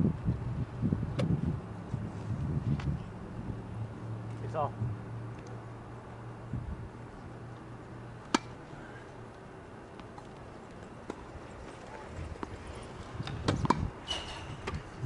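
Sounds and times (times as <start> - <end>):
tennis ball bouncing on hard court: 8.3 - 8.6, 11.0 - 11.3, 13.2 - 13.9
racket striking tennis ball: 8.3 - 8.7, 13.2 - 13.9.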